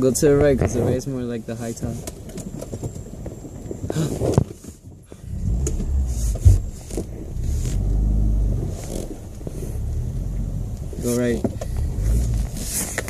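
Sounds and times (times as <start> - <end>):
car engine revving: 5.2 - 13.0.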